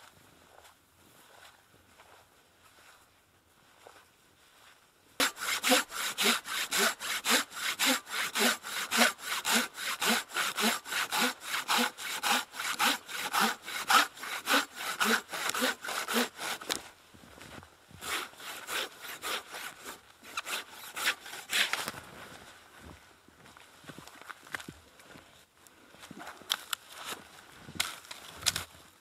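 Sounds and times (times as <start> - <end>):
hand saw cutting wood: 5.2 - 16.9, 18.0 - 21.9.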